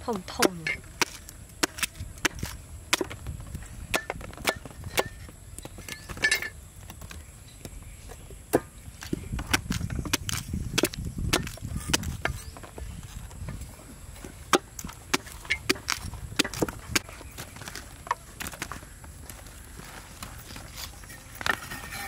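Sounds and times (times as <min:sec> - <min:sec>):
cleaver chopping on wooden board: 0:00.4 - 0:03.2, 0:03.9 - 0:05.3, 0:08.5 - 0:12.5, 0:14.5 - 0:17.1.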